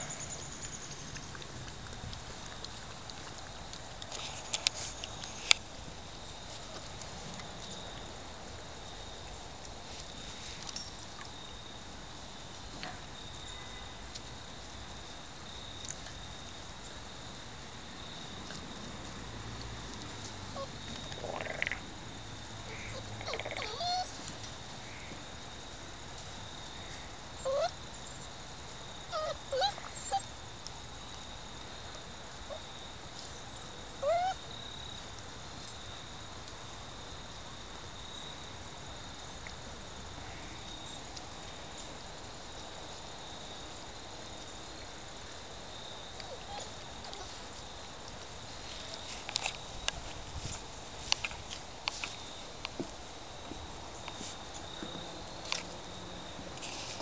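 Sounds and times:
puppies whining and yelping: 22.7 - 24.2, 27.4 - 27.8, 29.1 - 30.3, 33.5 - 34.4.

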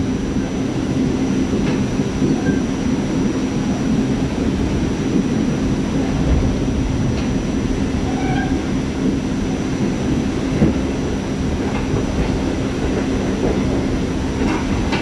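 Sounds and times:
subway car rumbling: 0.0 - 15.0
wheels clicking over rail joints: 9.8 - 15.0.

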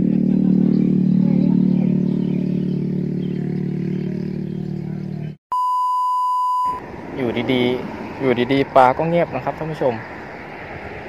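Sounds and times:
low droning hum: 0.0 - 5.4
electronic beep tone: 5.5 - 6.8.

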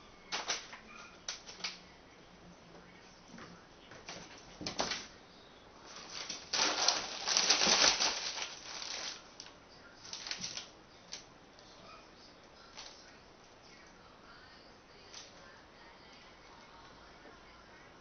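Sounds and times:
plastic shrink-wrap crinkling: 5.8 - 11.3.

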